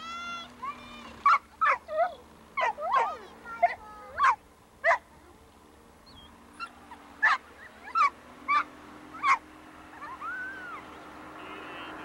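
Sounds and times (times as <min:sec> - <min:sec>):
animal barking: 0:01.2 - 0:05.1, 0:06.6 - 0:10.8.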